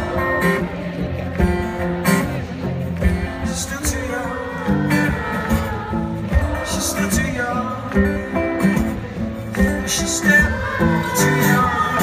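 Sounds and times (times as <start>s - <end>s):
acoustic guitar strumming: 0.0s - 12.0s
person singing: 9.5s - 12.0s.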